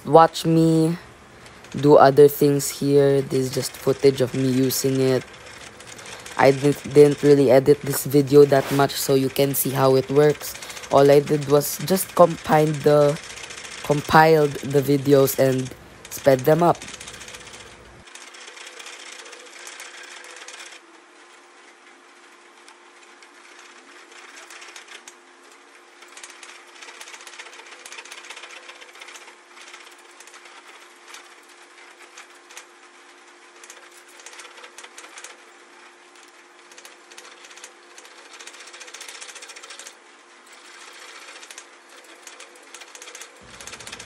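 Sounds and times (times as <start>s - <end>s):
steady hum: 0.0s - 27.7s, 36.7s - 44.0s.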